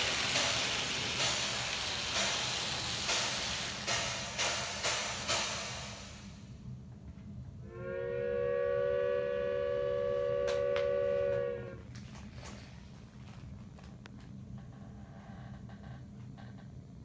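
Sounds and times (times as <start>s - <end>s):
low steady hum: 6.0s - 17.0s
steam locomotive whistle: 7.6s - 11.9s.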